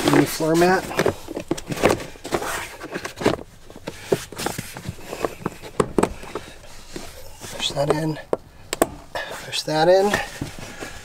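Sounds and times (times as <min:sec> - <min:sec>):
rubber mat knocking and rubbing: 0:00.0 - 0:07.1.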